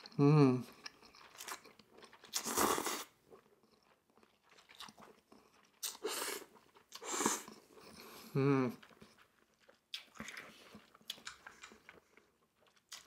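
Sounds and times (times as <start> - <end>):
soft chewing: 0.0 - 13.0
person slurping noodles: 2.3 - 3.2, 5.8 - 9.0.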